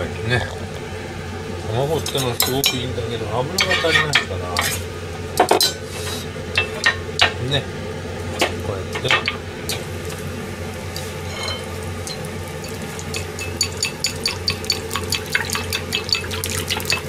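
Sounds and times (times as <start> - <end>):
steady low hum: 0.0 - 17.0
chopsticks beating eggs in bowl: 11.0 - 17.0
metal pan knock on burner grate: 13.1 - 17.0.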